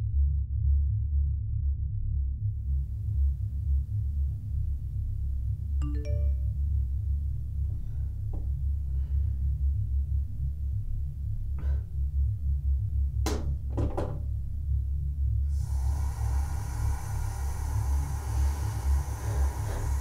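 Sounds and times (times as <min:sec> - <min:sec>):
low steady rumble: 0:00.0 - 0:20.0
sharp knocks: 0:13.2 - 0:14.3
steady rushing noise: 0:15.1 - 0:20.0.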